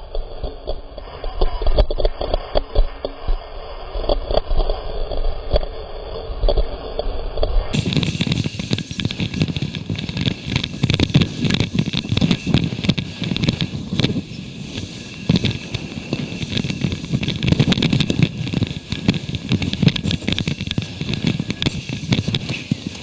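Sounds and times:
wind buffeting microphone: 6.3 - 23.0
fabric flapping in wind: 7.6 - 23.0.

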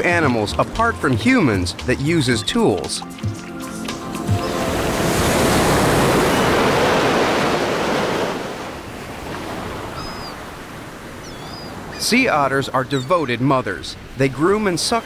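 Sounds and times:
ocean surf breaking on rocks: 3.7 - 15.0.

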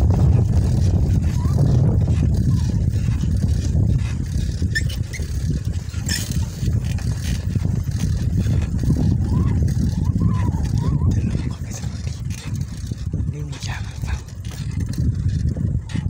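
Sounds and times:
bicycle tyre rumble on concrete: 0.0 - 16.0
wind buffeting microphone: 0.0 - 16.0.

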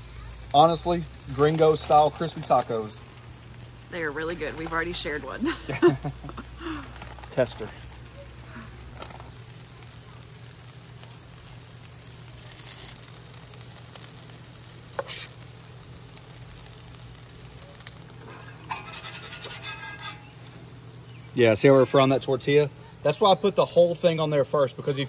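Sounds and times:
tortillas sizzling on griddle: 0.0 - 25.0
metal spatula scraping griddle: 14.9 - 15.4, 18.2 - 20.6.

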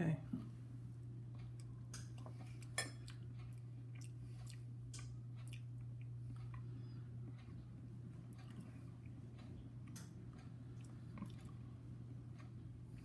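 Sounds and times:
steady low hum: 0.0 - 13.0
man chewing food: 0.5 - 13.0.

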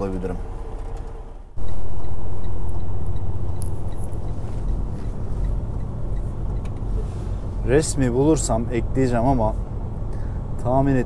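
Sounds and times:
truck rumble inside cab: 0.0 - 11.0
faint regular ticking: 1.6 - 6.9.

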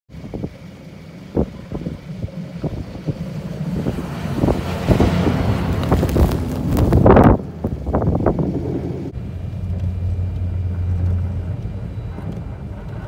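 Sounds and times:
wind buffeting microphone: 0.1 - 9.8
diesel engine plowing snow: 0.2 - 13.0
rush of thrown snow: 3.7 - 7.8.

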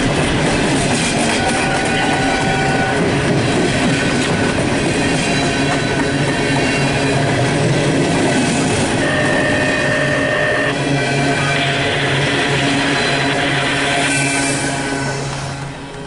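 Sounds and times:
train wheels clattering on rails: 0.0 - 16.0
high wheel squeal: 9.0 - 15.1.

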